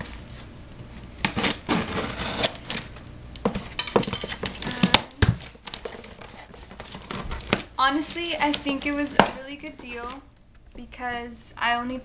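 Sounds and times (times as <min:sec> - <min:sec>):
packing tape peeling off cardboard: 0:01.2 - 0:02.9, 0:05.5 - 0:07.7.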